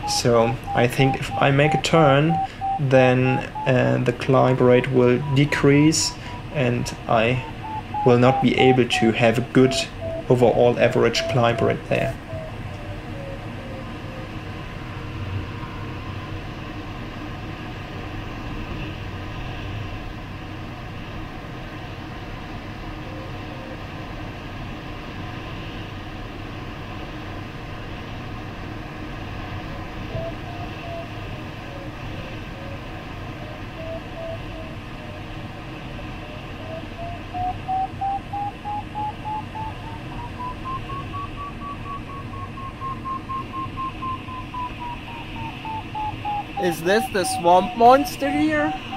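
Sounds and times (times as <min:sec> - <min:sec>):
variometer tone beeping: 0:00.0 - 0:14.4, 0:32.7 - 0:35.2, 0:36.2 - 0:48.9
cockpit airflow noise: 0:00.0 - 0:19.2, 0:28.1 - 0:48.9.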